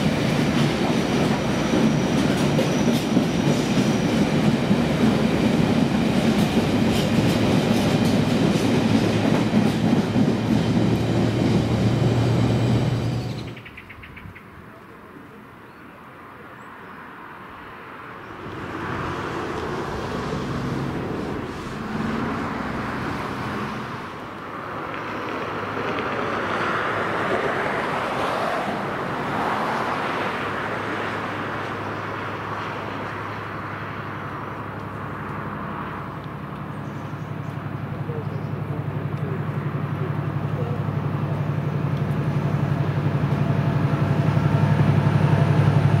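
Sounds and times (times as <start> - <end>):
diesel locomotive droning: 0.0 - 13.6, 18.3 - 26.3, 30.4 - 46.0
car passing: 16.7 - 46.0.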